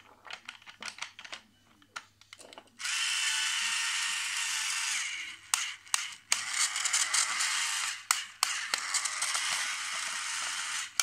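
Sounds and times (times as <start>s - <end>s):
toy drill whirring: 2.8s - 11.0s.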